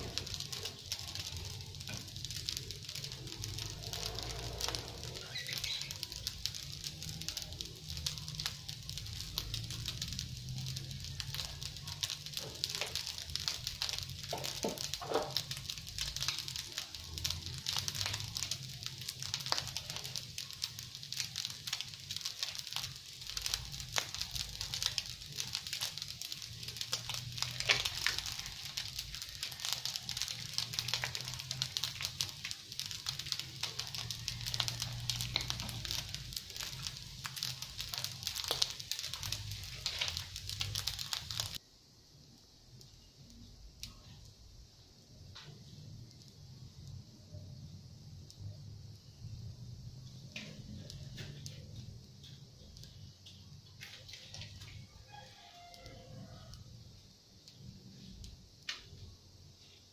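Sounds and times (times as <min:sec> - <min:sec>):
rice sizzling in a frying pan: 0:00.0 - 0:59.9.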